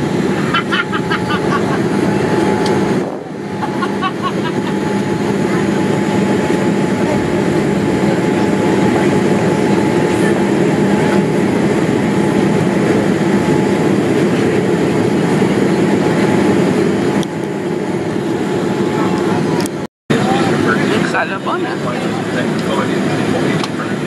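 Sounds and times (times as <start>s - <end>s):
low even hum: 0.0s - 13.0s
jet cabin engine and airflow rush: 0.0s - 24.0s.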